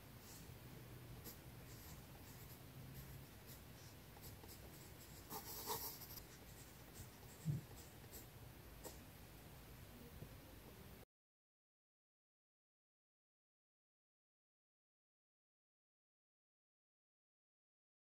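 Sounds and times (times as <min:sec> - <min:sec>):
pencil scratching on paper: 0:01.2 - 0:09.0.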